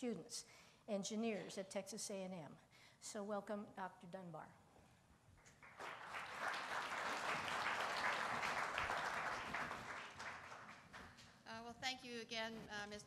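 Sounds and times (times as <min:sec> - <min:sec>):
audience applauding: 0:05.5 - 0:11.2.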